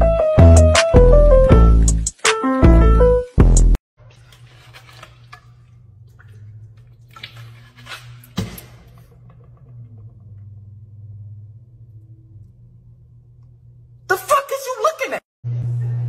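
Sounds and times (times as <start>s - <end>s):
low room hum: 8.9s - 14.5s.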